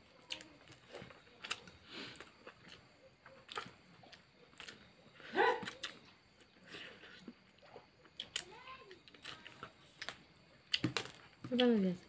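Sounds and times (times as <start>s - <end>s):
chewing: 0.0s - 11.7s.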